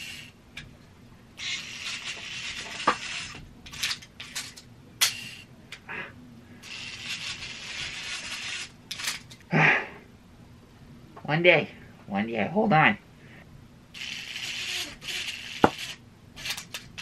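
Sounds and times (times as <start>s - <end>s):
toy line rasping and rubbing: 0.0s - 0.4s, 1.4s - 5.5s, 6.6s - 9.4s, 14.0s - 17.0s.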